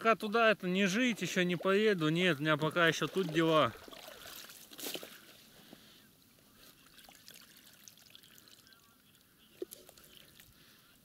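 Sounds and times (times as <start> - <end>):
water trickling from ladle: 1.0 - 5.1, 6.8 - 10.6.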